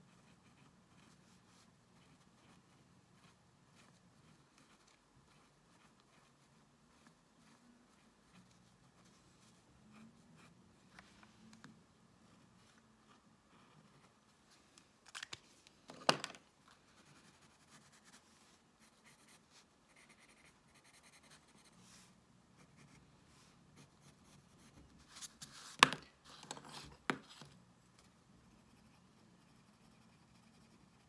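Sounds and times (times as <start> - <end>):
pencil scratching on paper: 0.0 - 10.7, 16.9 - 23.0, 23.8 - 25.6, 28.4 - 31.0.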